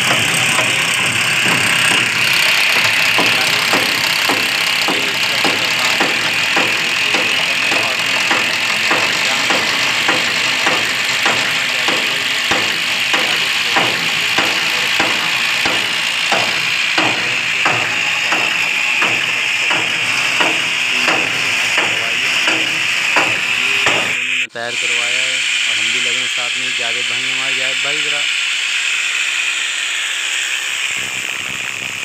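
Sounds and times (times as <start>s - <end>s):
hammer drill knocks: 0.0s - 24.2s
hammer drill whining: 0.0s - 32.0s.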